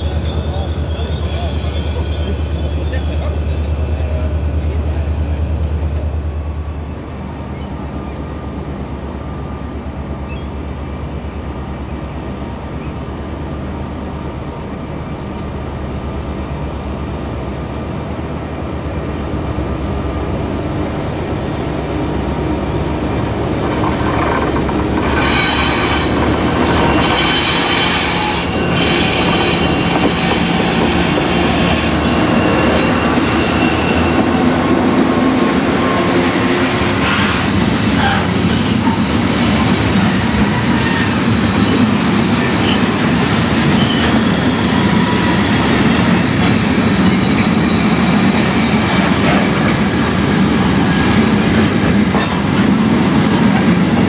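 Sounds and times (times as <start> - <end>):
steel wheels squealing on rails: 0.0 - 10.9, 22.9 - 53.4.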